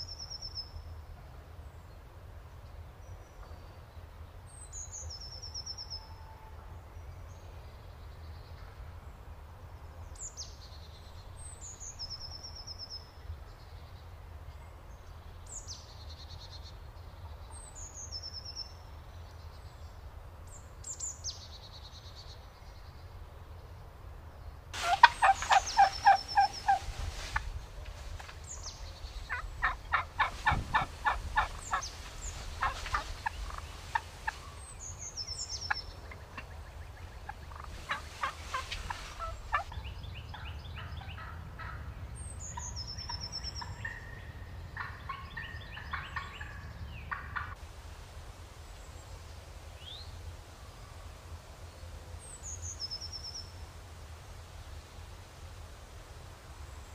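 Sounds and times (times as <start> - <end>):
turkeys gobbling: 24.8 - 27.6, 29.3 - 34.6, 36.0 - 41.8, 43.7 - 47.6.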